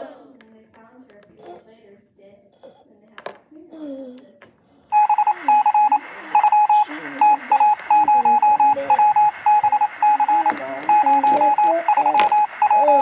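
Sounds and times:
short electronic beeps: 4.9 - 13.0
muffled voice: 5.0 - 13.0.

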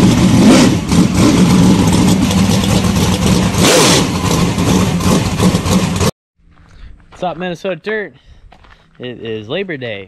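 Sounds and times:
race car engine revving: 0.0 - 6.1.

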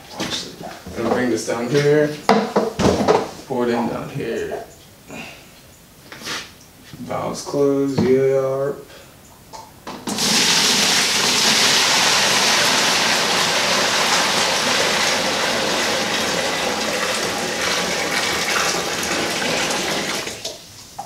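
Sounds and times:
water pouring from kettle: 10.1 - 20.5.

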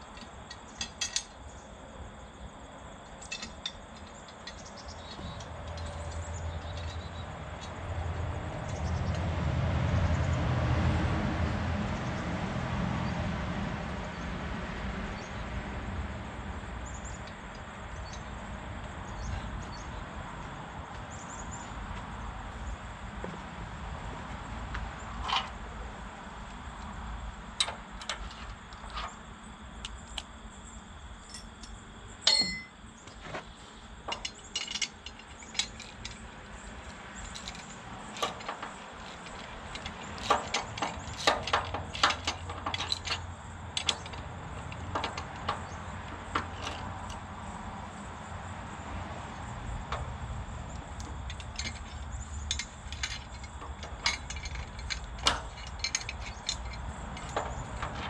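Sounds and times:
metal parts clinking: 0.0 - 1.4, 3.1 - 7.8, 31.2 - 32.8, 34.1 - 47.2, 50.7 - 58.0
loud ringing metal clank: 32.3 - 32.8.

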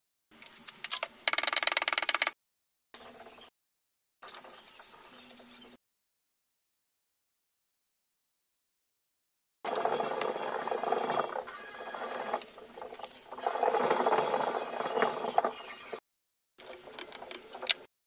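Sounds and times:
ratchet wrench: 0.9 - 2.4.

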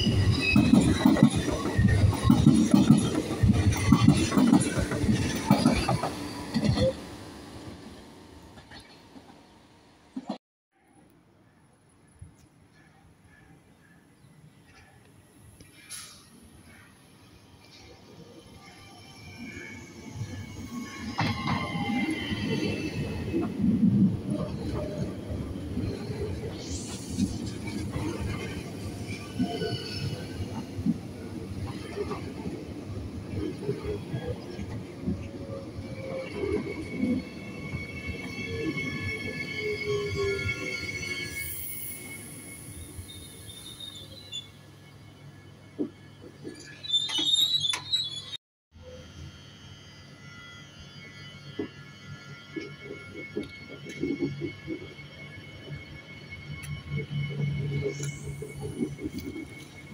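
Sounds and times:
train wheels rumbling on rails: 0.0 - 10.4, 50.9 - 59.9.

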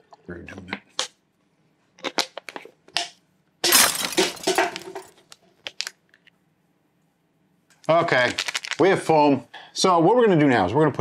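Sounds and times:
plastic bottle crackling: 8.1 - 8.9.

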